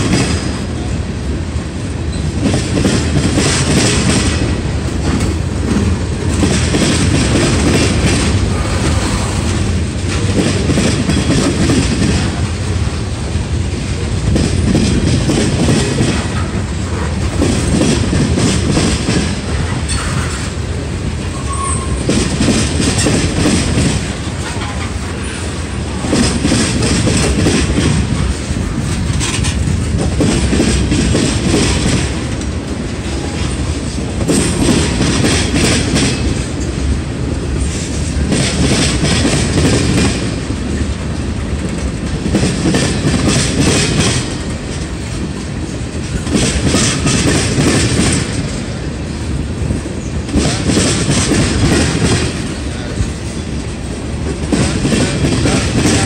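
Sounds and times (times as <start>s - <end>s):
train wheels clacking on rails: 0.0s - 56.0s.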